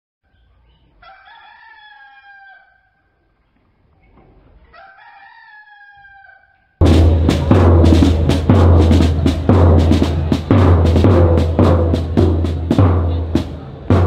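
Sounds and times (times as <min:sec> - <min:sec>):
rooster crowing: 0:01.0 - 0:03.1, 0:04.7 - 0:06.8.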